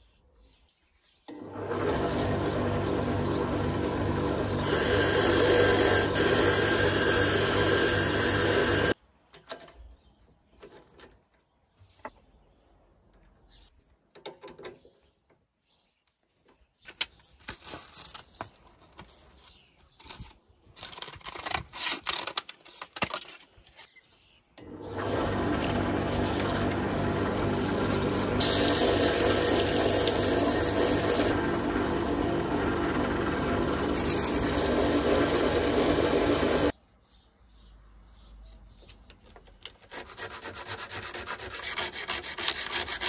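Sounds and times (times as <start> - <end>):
drill press motor running: 1.3 - 9.0, 24.6 - 36.7.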